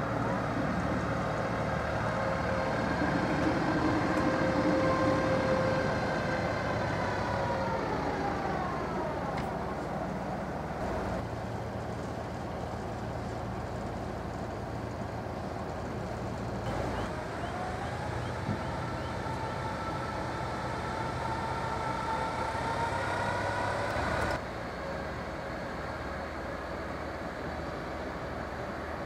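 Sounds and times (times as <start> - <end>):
whine rising in pitch: 0.0 - 9.9
low mechanical hum: 0.0 - 29.0.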